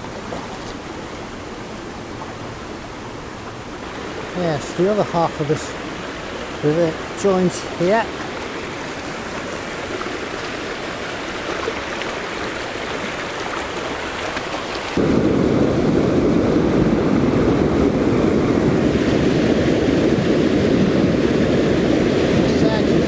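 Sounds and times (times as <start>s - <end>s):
river rushing over rocks: 0.0s - 15.2s.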